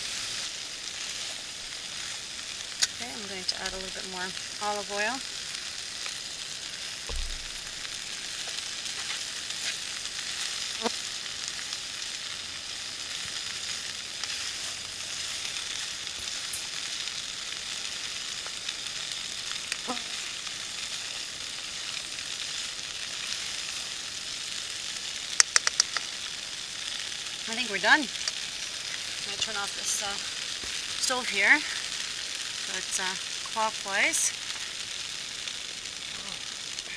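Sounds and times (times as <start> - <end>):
food sizzling in oil: 0.0 - 36.9
utensil clicking against pot: 25.4 - 26.1.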